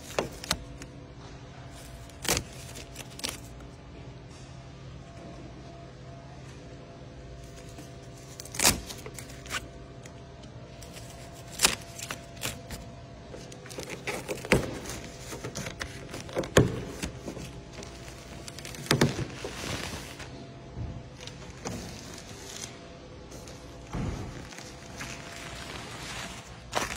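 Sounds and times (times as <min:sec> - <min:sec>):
protective cover rustling and crinkling: 0:10.8 - 0:20.5, 0:21.2 - 0:26.9.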